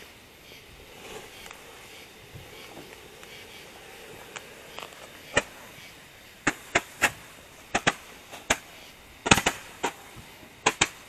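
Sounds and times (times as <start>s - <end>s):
firework cracks and pops: 4.1s - 5.8s, 6.4s - 11.0s.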